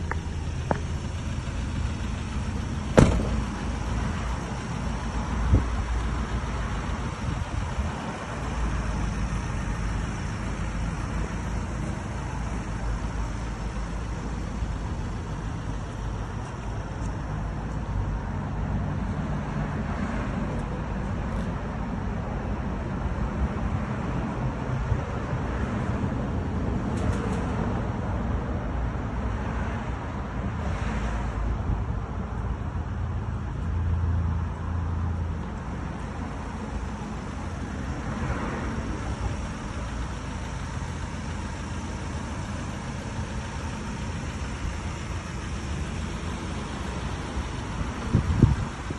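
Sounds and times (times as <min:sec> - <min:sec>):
low rumble of motor vehicle: 0:00.0 - 0:48.9
sharp knock: 0:02.9 - 0:03.6.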